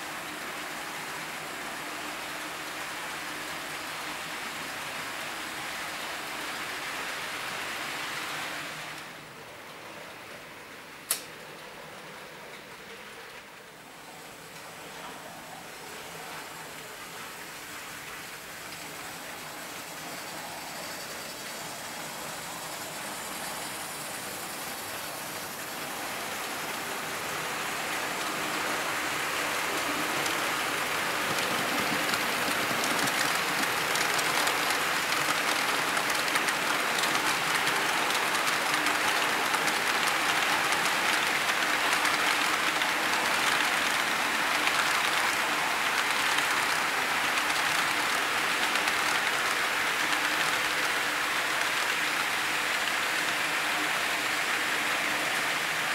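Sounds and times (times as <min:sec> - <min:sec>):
model train wheels rattling: 0:17.4 - 0:54.7.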